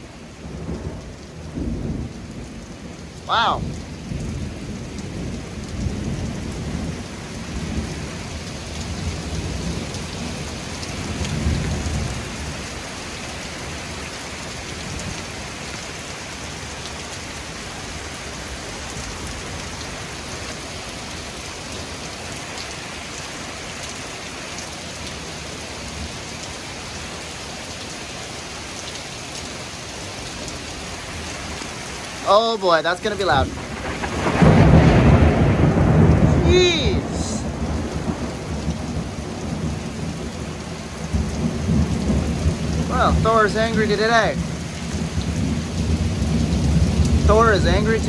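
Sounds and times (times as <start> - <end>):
heavy rain pouring: 0.0 - 48.0
thunder rumbling: 33.1 - 48.0.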